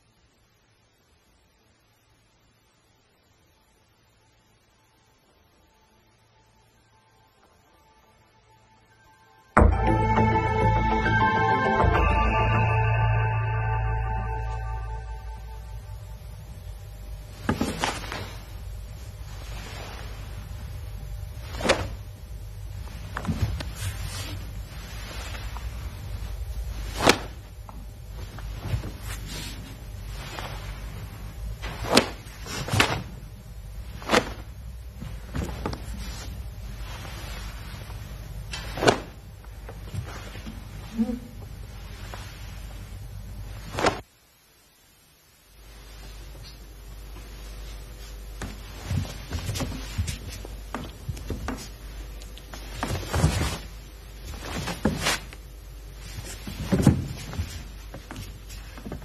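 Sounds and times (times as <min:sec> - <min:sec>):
low steady hum: 0:00.0 - 0:59.0
swish of cotton uniforms: 0:17.3 - 0:22.1, 0:22.7 - 0:44.2, 0:45.5 - 0:59.0
bare feet thudding on a mat: 0:17.4 - 0:18.4, 0:22.9 - 0:24.6, 0:26.8 - 0:30.8, 0:31.6 - 0:33.2, 0:33.9 - 0:40.9, 0:48.0 - 0:55.4, 0:56.0 - 0:59.0
cloth snapping: 0:21.5 - 0:22.0, 0:26.9 - 0:27.4, 0:31.6 - 0:33.2, 0:33.9 - 0:34.5, 0:38.5 - 0:40.5, 0:43.6 - 0:44.1.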